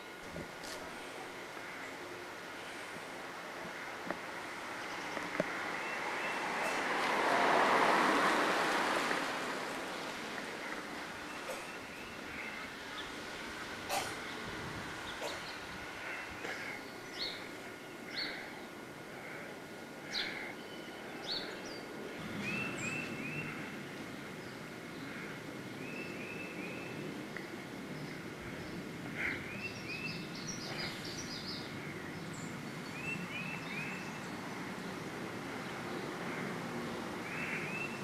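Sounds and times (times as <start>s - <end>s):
birds chirping: 0.0s - 7.2s, 8.8s - 38.0s
steady background hiss: 0.0s - 38.0s.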